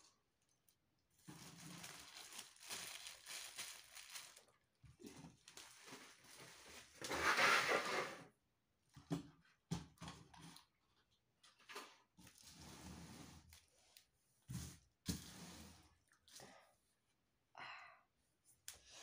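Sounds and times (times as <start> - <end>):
plastic wrapping crinkling: 1.2 - 7.0.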